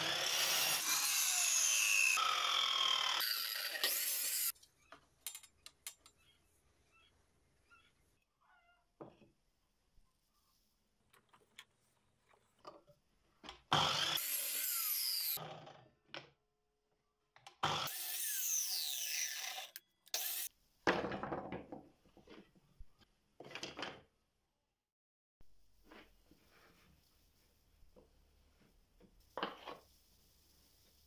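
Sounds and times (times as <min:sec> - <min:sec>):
miter saw cutting wood: 0:00.0 - 0:04.5, 0:13.8 - 0:15.4, 0:17.7 - 0:20.5.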